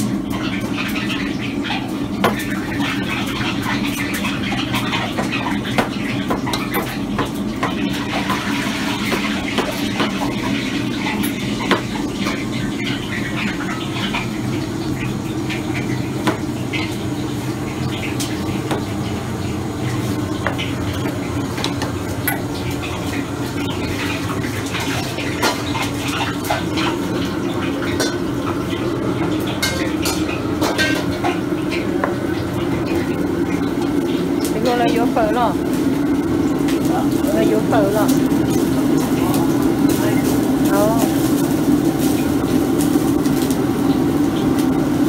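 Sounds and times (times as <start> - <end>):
dishes and utensils clattering: 0.0 - 14.3, 23.8 - 32.2.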